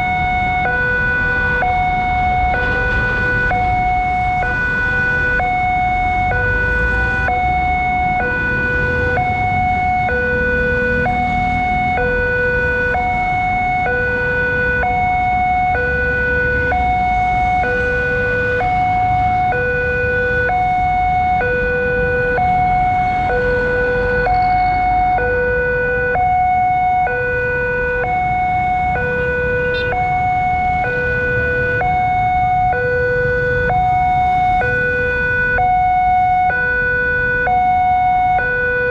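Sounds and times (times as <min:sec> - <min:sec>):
level crossing hi-lo alarm: 0:00.0 - 0:38.9.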